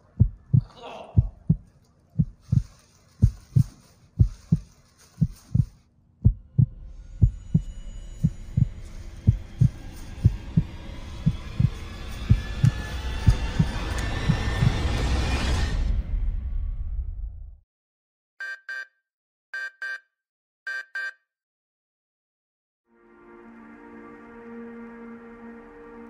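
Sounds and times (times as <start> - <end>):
heartbeat thumps: 0.0 - 14.9
low droning music: 6.4 - 16.8, 22.9 - 26.0.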